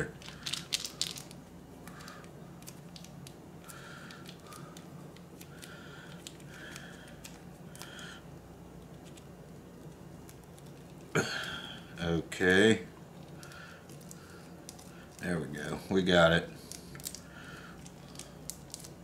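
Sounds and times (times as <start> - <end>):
plastic sachet squeaking: 0.0 - 1.4
plastic sachet crinkling: 0.0 - 8.1, 13.2 - 15.4, 16.6 - 19.0.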